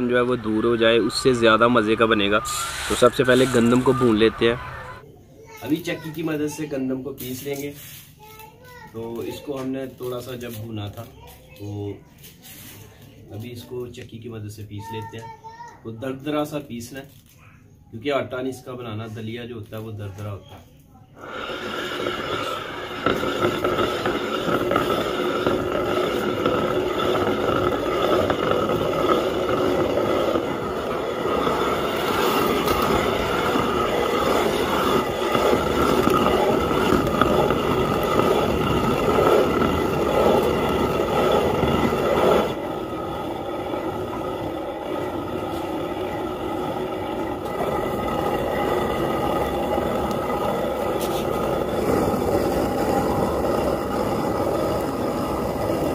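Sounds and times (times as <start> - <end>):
stone quern grinding: 0.0 - 5.0, 21.2 - 55.9.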